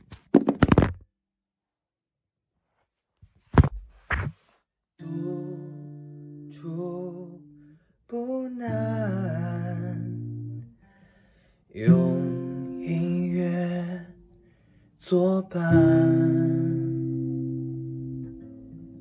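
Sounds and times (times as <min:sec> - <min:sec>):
wordless voice singing: 0:05.0 - 0:10.6, 0:11.7 - 0:14.4, 0:15.0 - 0:17.2
acoustic guitar chords: 0:05.0 - 0:19.0.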